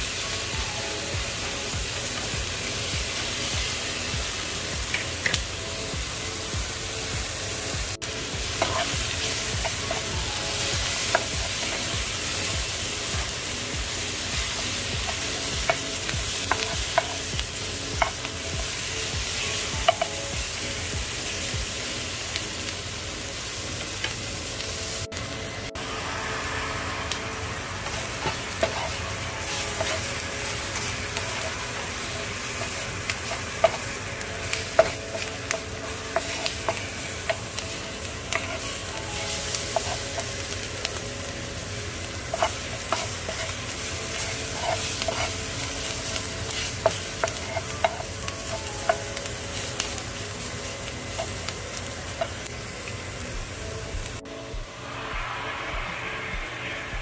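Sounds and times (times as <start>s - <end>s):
vegetables sizzling in a frying pan: 0.0s - 57.0s
wooden spoon scraping a pan: 44.2s - 45.9s.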